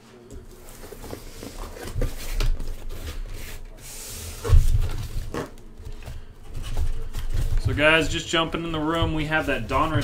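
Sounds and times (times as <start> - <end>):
cardboard rubbing and scraping: 0.5 - 5.6.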